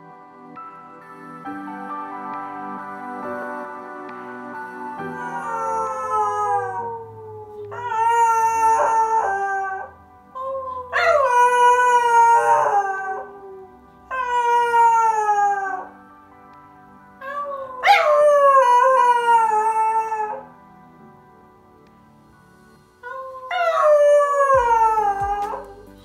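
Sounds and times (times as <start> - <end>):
puppy howling: 5.1 - 16.0, 17.2 - 20.5, 23.0 - 25.9.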